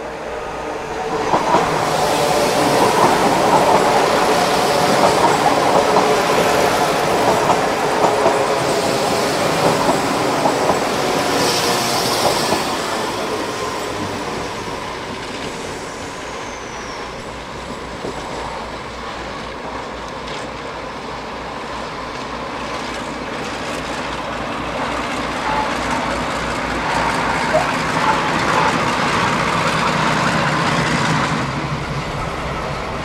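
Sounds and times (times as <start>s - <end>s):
train rumbling on track: 0.0s - 33.0s
high wheel squeal: 8.4s - 18.6s, 24.8s - 30.2s.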